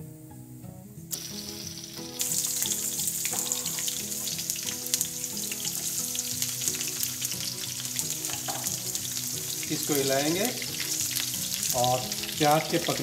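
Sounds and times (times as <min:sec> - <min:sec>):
onions sizzling in hot oil: 0:01.1 - 0:13.0
small oil pops: 0:07.6 - 0:09.8.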